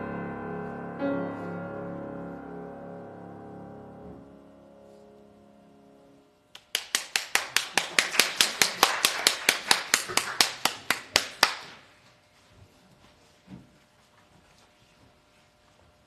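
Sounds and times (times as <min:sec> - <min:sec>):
sharp hand claps close by: 0:06.6 - 0:11.8
faint clapping: 0:06.6 - 0:11.9.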